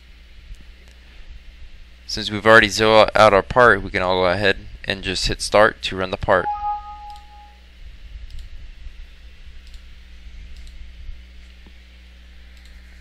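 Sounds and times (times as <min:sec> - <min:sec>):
low electrical hum: 0:00.0 - 0:13.0
faint clicks: 0:12.5 - 0:12.8.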